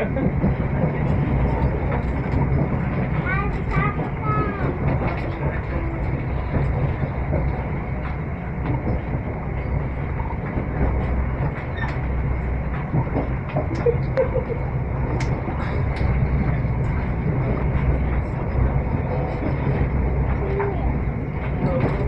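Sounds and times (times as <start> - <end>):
train rumbling: 0.0 - 22.0
light clicks and rattles: 10.0 - 22.0.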